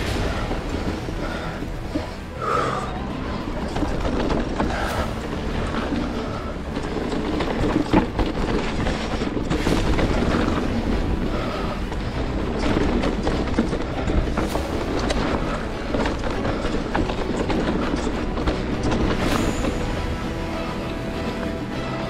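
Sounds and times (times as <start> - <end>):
tyres on dirt: 0.0 - 22.0
bike clattering over bumps: 3.4 - 19.9.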